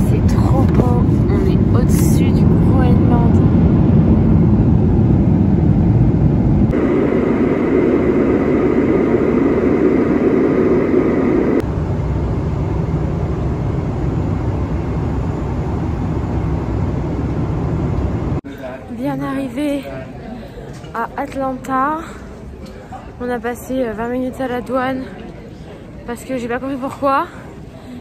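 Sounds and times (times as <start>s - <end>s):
jet engine cabin hum: 0.0s - 18.4s
rush of air: 3.2s - 12.2s.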